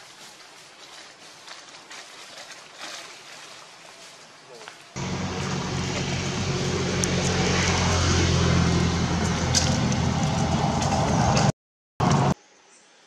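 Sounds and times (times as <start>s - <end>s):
engine hum: 5.0s - 12.4s.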